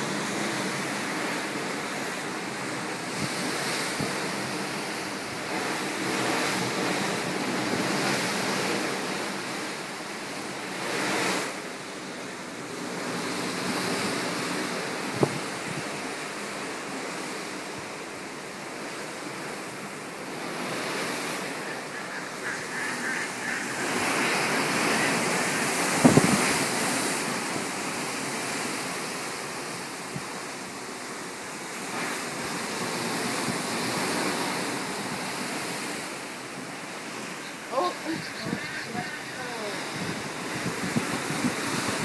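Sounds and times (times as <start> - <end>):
ocean waves: 0.0 - 42.0
wind buffeting microphone: 15.0 - 16.0, 20.3 - 27.8, 38.0 - 42.0.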